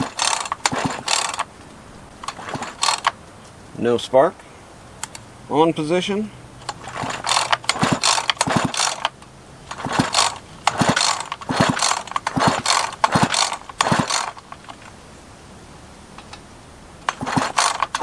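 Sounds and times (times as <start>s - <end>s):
chainsaw engine spinning: 0.0s - 1.5s, 2.2s - 3.2s, 6.6s - 14.8s, 17.0s - 18.0s
recoil starter cord rasping: 0.0s - 1.5s, 2.2s - 3.2s, 6.6s - 14.9s, 17.0s - 18.0s.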